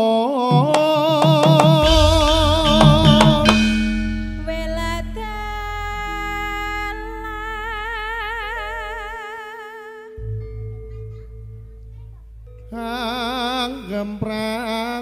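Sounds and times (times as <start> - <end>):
person singing with vibrato: 0.0 - 10.4, 12.7 - 15.0
gamelan ringing tones: 0.5 - 9.2.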